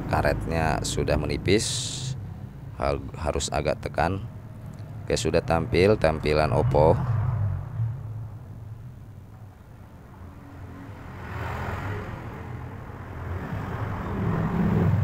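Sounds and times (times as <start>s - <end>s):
steady low traffic hum: 0.0s - 15.0s
vehicle passing: 4.2s - 15.0s.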